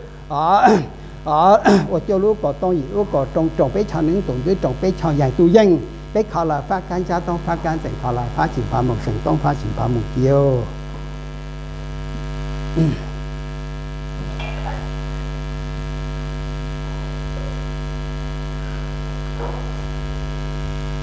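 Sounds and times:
man calling out: 0.0s - 10.8s
electrical mains hum: 0.0s - 21.0s.

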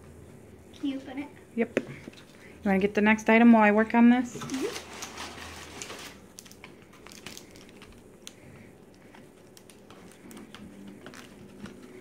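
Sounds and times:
tissue paper rustling: 4.5s - 6.3s.

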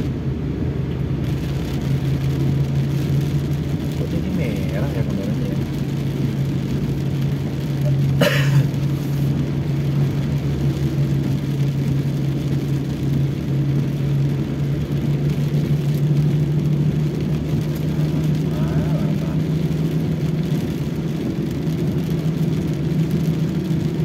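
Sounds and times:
car engine and tyre hum: 0.0s - 24.0s.

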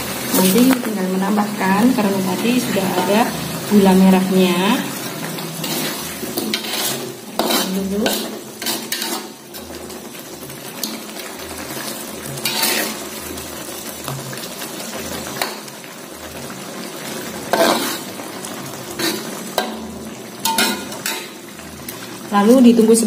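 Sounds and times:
food hissing in pan: 0.0s - 22.3s
metal spoon scraping wok: 1.8s - 14.2s, 17.1s - 21.7s.

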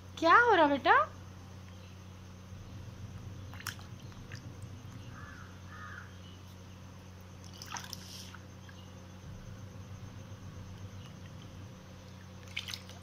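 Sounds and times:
water splashing in plastic tub: 3.4s - 5.0s, 7.4s - 8.7s, 10.8s - 13.0s.

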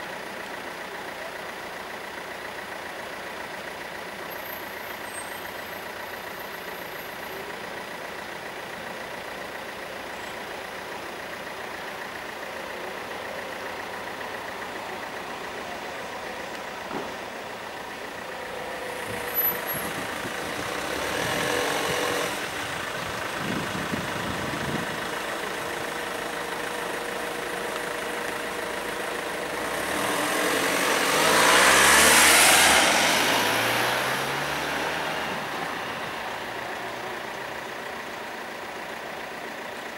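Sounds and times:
vehicle passing close by: 29.6s - 35.8s.

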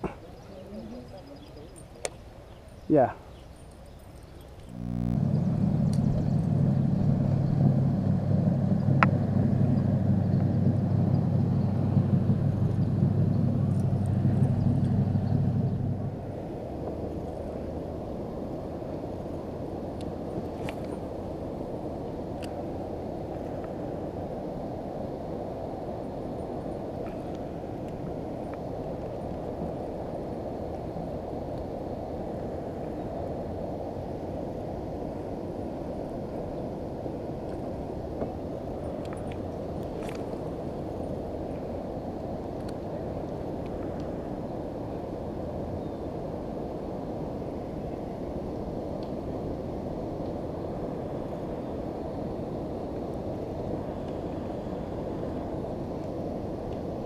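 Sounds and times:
wind on microphone: 3.9s - 57.0s
wind rushing: 4.7s - 19.2s.

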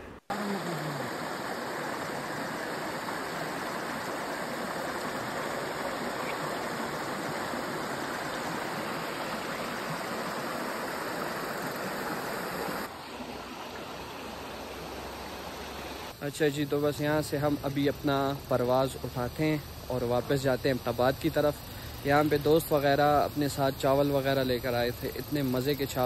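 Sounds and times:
stream rushing over rocks: 0.3s - 16.1s.

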